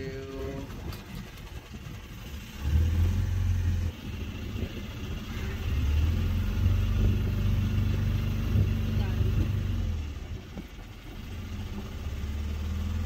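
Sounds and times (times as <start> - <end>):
boat motor humming: 0.0 - 13.0.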